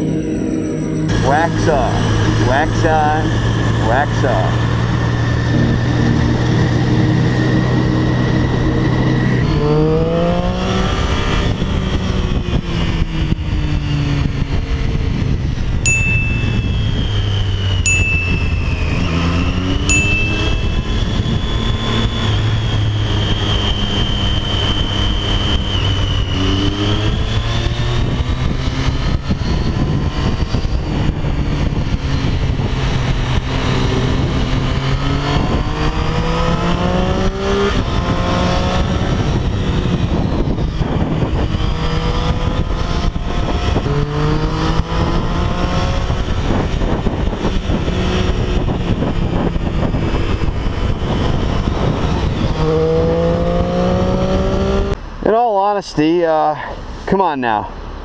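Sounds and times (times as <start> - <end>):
wind and road noise: 0.0 - 58.0
motorcycle engine accelerating: 20.6 - 55.0.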